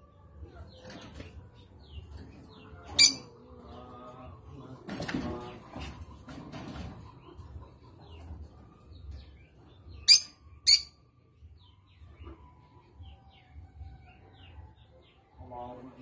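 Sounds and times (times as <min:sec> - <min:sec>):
lovebird sharp high calls: 0:10.0 - 0:11.0
faint bird chirps: 0:10.0 - 0:11.1.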